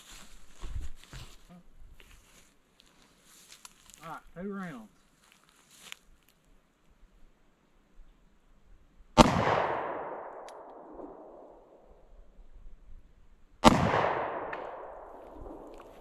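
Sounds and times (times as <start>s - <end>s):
gunshots echoing: 9.2s - 11.7s, 13.6s - 16.0s.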